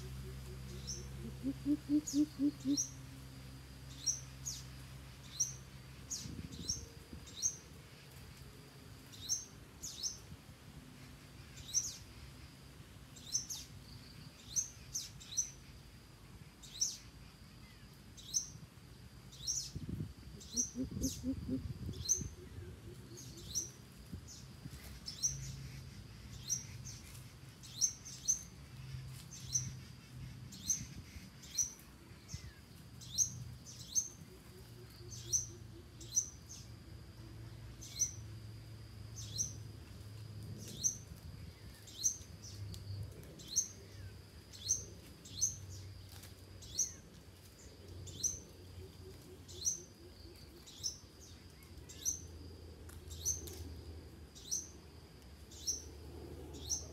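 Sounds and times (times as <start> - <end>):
bird chirping: 0.0 - 3.0, 19.3 - 36.8, 37.7 - 38.3, 39.1 - 39.6, 47.6 - 52.4, 55.4 - 56.9
deep hooting bird calls: 0.0 - 3.0, 20.4 - 23.7.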